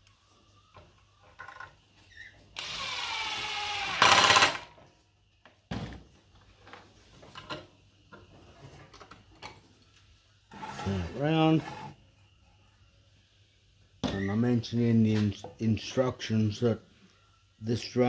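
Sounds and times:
cordless drill driving a screw: 0:02.6 - 0:04.6.

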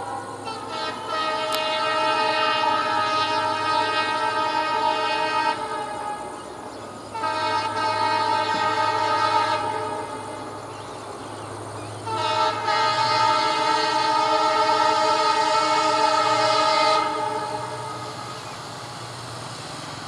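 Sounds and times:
locomotive air horn blasts: 0:00.0 - 0:10.7, 0:12.0 - 0:18.6
diesel engine low drone: 0:16.1 - 0:20.0.

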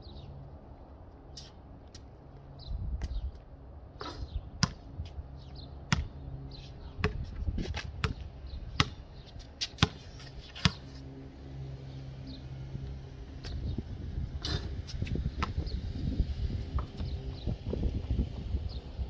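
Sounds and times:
basketball bouncing on concrete: 0:04.6 - 0:04.9, 0:05.9 - 0:06.2, 0:07.0 - 0:08.2, 0:08.8 - 0:09.0, 0:09.6 - 0:10.0, 0:10.6 - 0:10.8.

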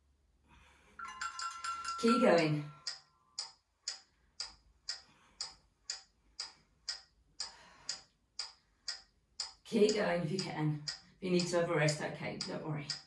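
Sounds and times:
steady ticking: 0:01.1 - 0:13.0.

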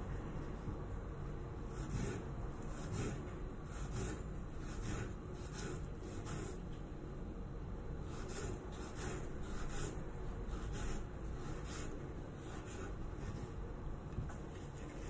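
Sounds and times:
knife slicing onion on wooden board: 0:01.8 - 0:06.6, 0:08.1 - 0:13.0.

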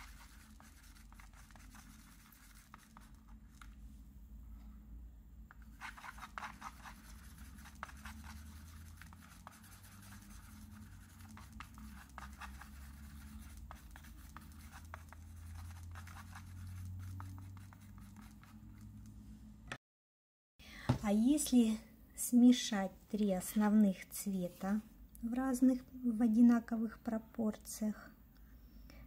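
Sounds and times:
wooden stick stirring thick paint: 0:00.0 - 0:03.7, 0:05.5 - 0:19.0.

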